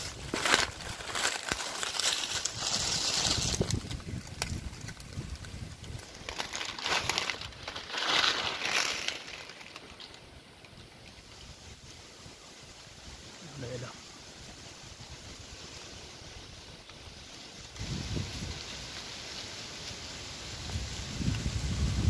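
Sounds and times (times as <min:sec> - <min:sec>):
dry leaves rustling: 0:00.0 - 0:22.0
wind gusting on microphone: 0:02.2 - 0:07.8, 0:11.2 - 0:19.0, 0:20.3 - 0:22.0.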